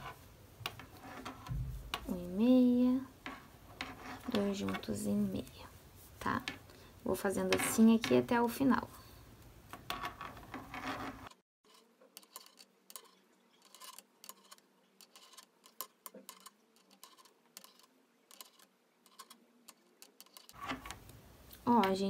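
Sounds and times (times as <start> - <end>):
knitting needles clicking: 13.7 - 22.0.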